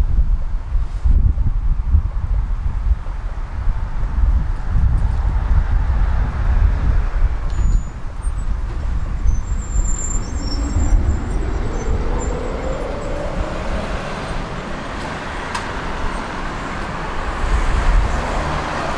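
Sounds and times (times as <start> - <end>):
tram rumbling on rails: 2.0 - 18.9
tram motor whine: 8.5 - 17.3.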